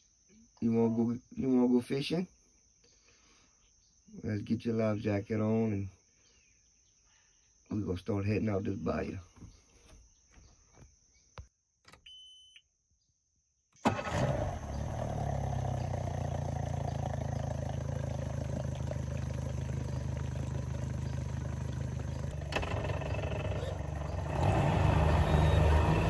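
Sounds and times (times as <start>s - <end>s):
short high ignition beep: 12.0s - 12.6s, 25.1s - 26.0s
outboard motor starting and running: 13.8s - 26.0s.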